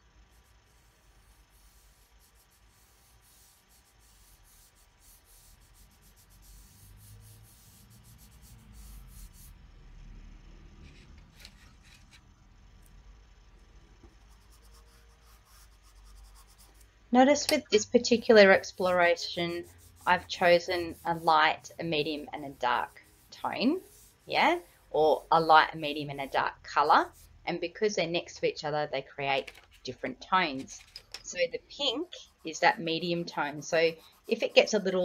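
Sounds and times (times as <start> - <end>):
fingertip rubbing pastel on paper: 0.2 - 9.6, 14.3 - 16.8, 18.0 - 27.3, 31.8 - 35.0.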